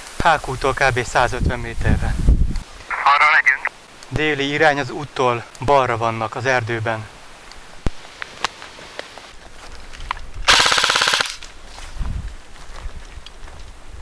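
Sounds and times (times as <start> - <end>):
airsoft gun full-auto burst: 10.5 - 11.5
sharp clicks: 10.5 - 11.5.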